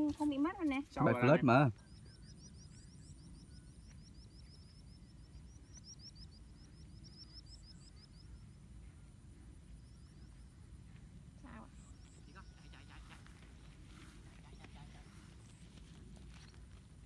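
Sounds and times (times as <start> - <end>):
low wind rumble: 0.9 - 17.0
faint steady high tone: 1.0 - 13.6.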